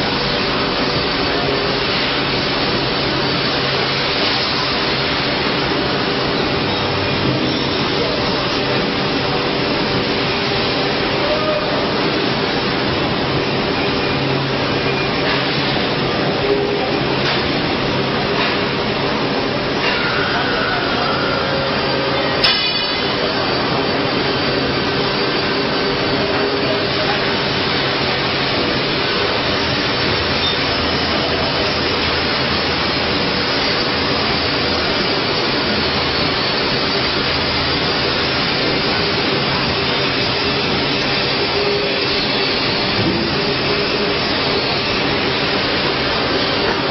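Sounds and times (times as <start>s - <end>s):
router machining noise: 19.8s - 46.9s.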